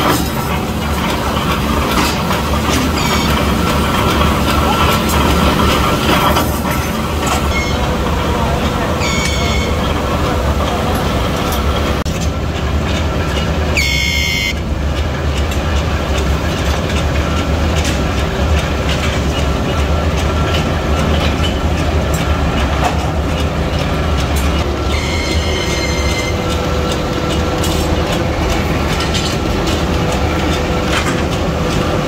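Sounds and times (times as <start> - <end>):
heavy machinery humming: 0.0 - 32.0
machinery clanks: 0.0 - 32.0
high-pitched squeal: 2.8 - 12.0, 24.9 - 26.6.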